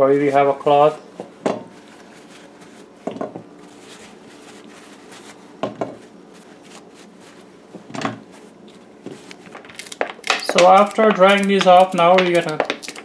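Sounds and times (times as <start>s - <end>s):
okra pods tapping on ceramic plate: 9.6s - 13.0s.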